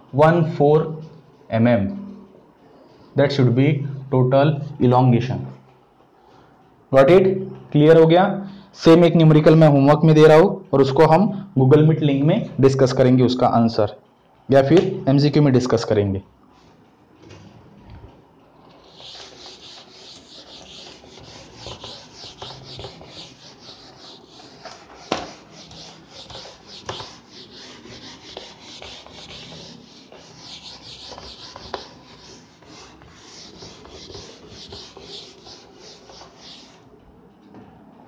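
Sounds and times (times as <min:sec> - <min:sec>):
eraser rubbing whiteboard: 0:18.8 - 0:36.9.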